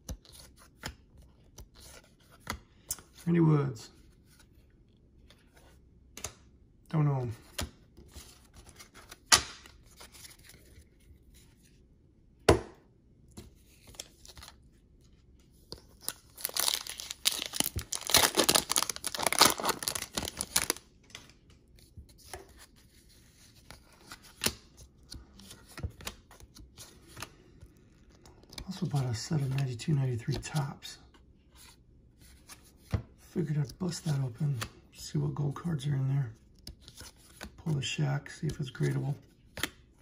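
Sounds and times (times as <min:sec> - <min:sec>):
wrapper tearing and crinkling: 0:16.1 - 0:20.8.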